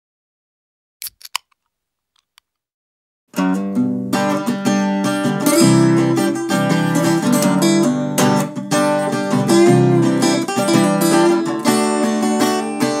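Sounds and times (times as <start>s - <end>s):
acoustic guitar strummed chords: 3.3s - 13.0s.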